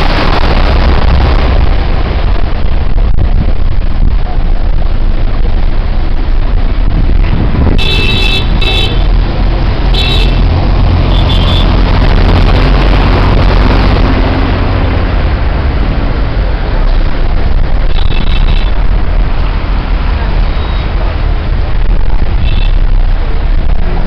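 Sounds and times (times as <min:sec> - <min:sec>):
water rushing from wheels: 0:00.0 - 0:06.9
bus engine running: 0:00.0 - 0:24.0
vehicle horn blasts: 0:07.8 - 0:09.1, 0:09.9 - 0:10.4, 0:11.1 - 0:11.7.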